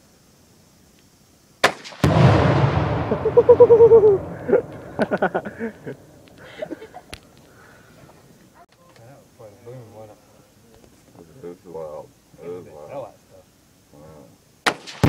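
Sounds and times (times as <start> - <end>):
rifle shot crack: 1.6 - 6.4, 14.6 - 15.0
explosion boom rumbling: 2.0 - 6.3.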